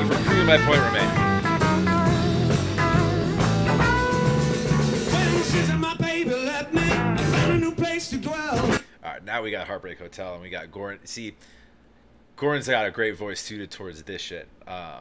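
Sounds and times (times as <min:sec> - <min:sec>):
band playing rock and roll: 0:00.0 - 0:08.8
man singing: 0:05.0 - 0:08.9.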